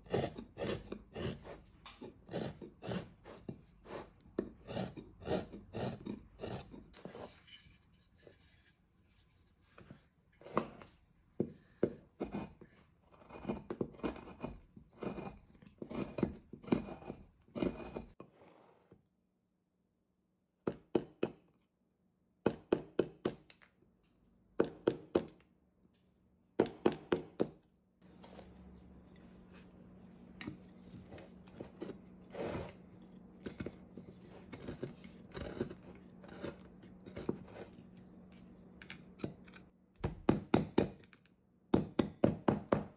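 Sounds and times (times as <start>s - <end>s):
carving gouge paring wood: 0.0s - 7.4s, 11.4s - 18.2s, 30.4s - 38.0s.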